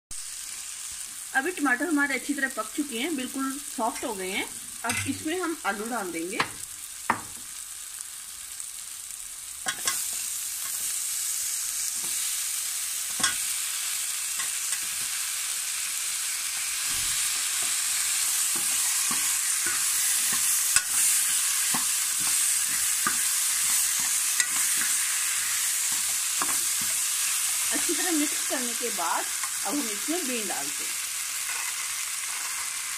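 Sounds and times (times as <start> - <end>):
potatoes sizzling in a pan: 0.1 - 32.9.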